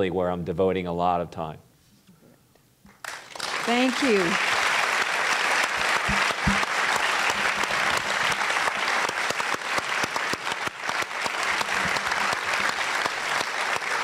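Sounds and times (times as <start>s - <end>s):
audience applauding: 3.0s - 14.0s.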